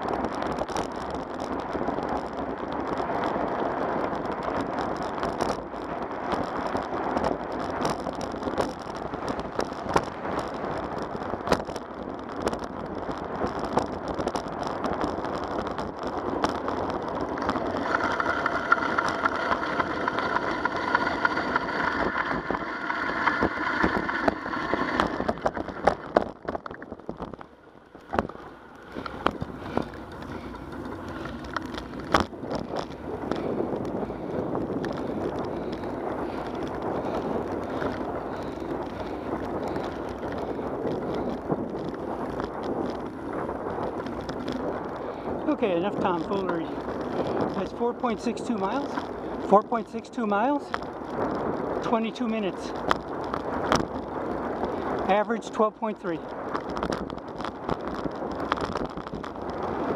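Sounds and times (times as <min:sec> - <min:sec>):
bicycle rattling over cracks: 0:00.0 - 0:59.9
bicycle tyre rolling on asphalt: 0:00.0 - 0:59.9
steady whine: 0:13.7 - 0:50.8.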